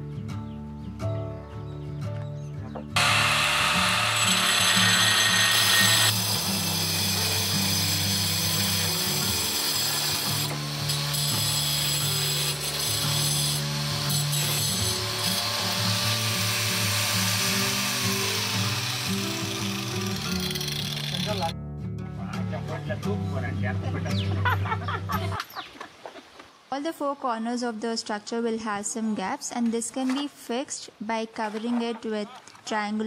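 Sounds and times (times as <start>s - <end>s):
background music: 0.0s - 25.6s
angle grinder cutting tile: 3.0s - 21.5s.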